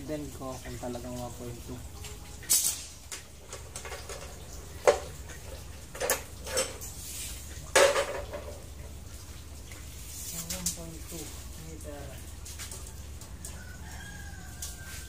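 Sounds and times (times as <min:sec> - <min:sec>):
metal rod clanking on concrete: 0:05.9 - 0:07.0, 0:07.7 - 0:08.6.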